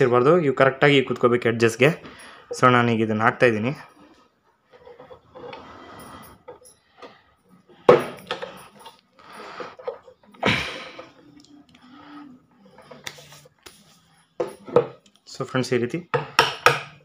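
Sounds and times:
metal scraping and clunking: 3.8 - 11.2.

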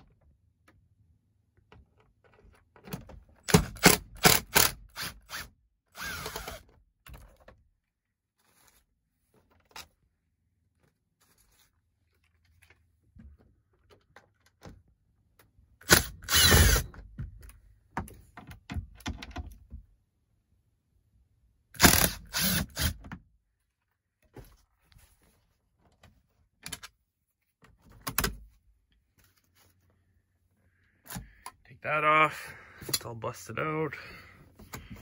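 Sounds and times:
power tool bursts: 15.9 - 16.8, 21.8 - 23.0.

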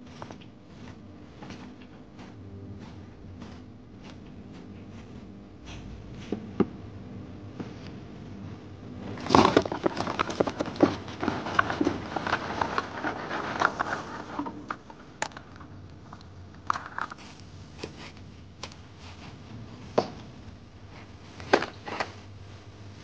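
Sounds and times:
crayfish shells clattering: 9.2 - 17.3.

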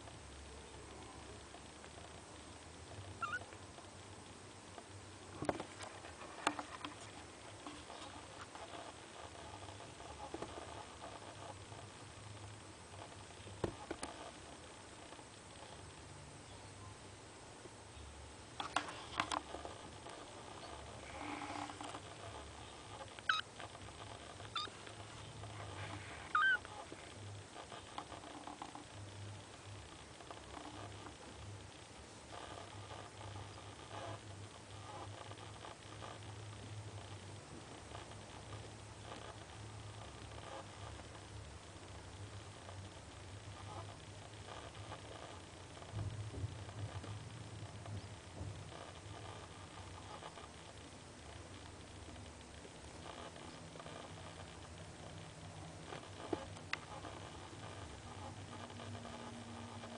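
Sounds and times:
kitten mewing: 3.2 - 3.5, 24.5 - 24.7, 26.3 - 26.9.

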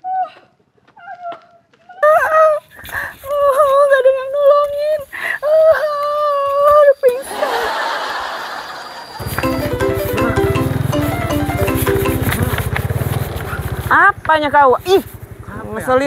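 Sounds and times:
light marimba-like tune: 9.2 - 12.7.

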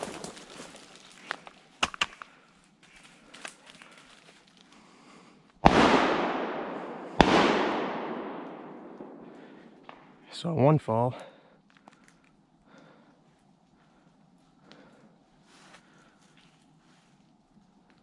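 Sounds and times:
shotgun shots with echo: 5.6 - 10.1.

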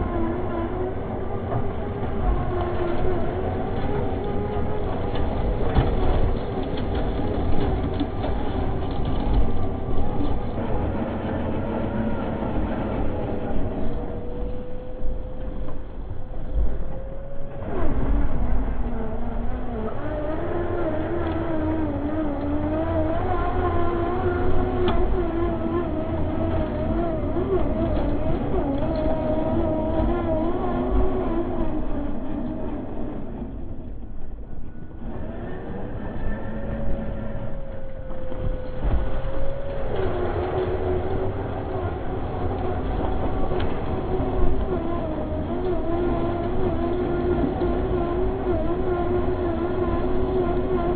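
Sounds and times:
electric motor whining: 0.0 - 50.9
low chassis rumble: 0.0 - 50.9.

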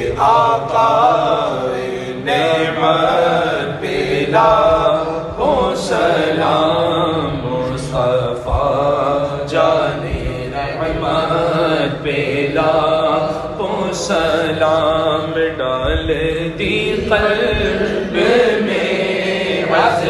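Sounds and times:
man singing unaccompanied: 0.0 - 20.0
steady low drone: 0.0 - 20.0.

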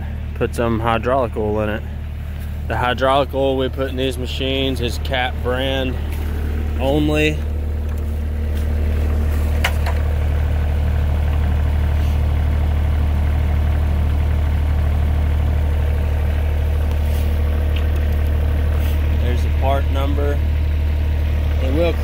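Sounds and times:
diesel engine idling: 0.0 - 22.0.

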